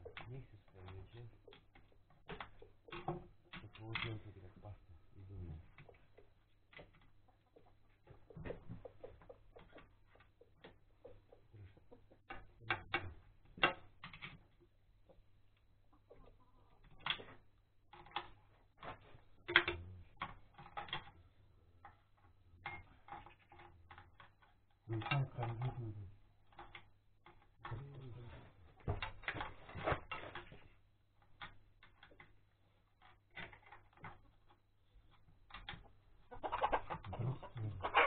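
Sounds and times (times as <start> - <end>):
hens clucking: 0.0 - 13.2, 15.0 - 17.4, 35.8 - 38.0.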